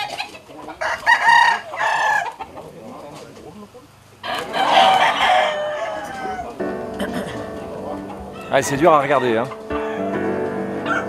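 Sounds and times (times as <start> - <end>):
cocks fighting: 0.0 - 11.0
rooster crowing: 0.8 - 2.4, 4.2 - 6.6, 8.3 - 11.0.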